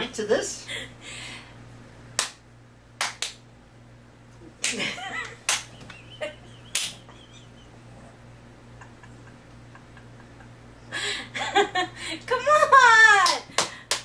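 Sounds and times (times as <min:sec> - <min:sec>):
hand claps and slaps: 0:02.2 - 0:02.4, 0:03.0 - 0:03.4, 0:04.6 - 0:07.2, 0:13.2 - 0:14.0
person laughing: 0:04.6 - 0:12.9.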